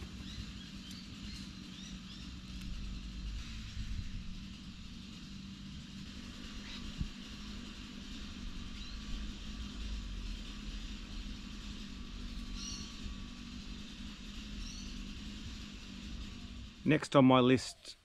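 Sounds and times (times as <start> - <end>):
faint even hum: 0.0 - 18.0
low background rumble: 0.0 - 18.0.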